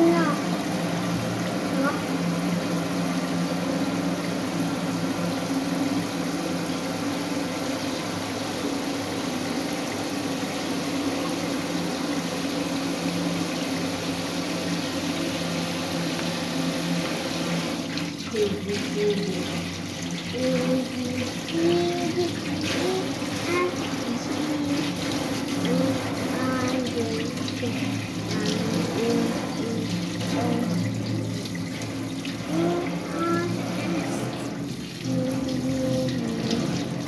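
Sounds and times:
water running from a tap: 0.0s - 37.0s
child humming softly: 20.4s - 24.9s, 32.5s - 34.4s, 35.1s - 36.8s.

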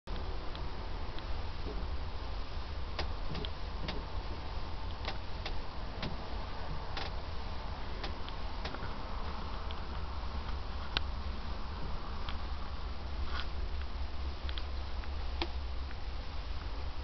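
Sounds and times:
camera handling rumble and hiss: 12.2s - 16.0s
light clicks and ticks: 13.3s - 16.0s.

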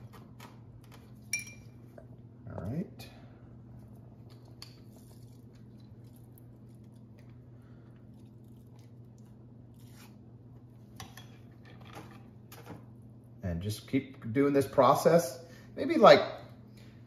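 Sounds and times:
steady low hum: 0.0s - 17.0s
faint squishing: 3.7s - 10.2s.

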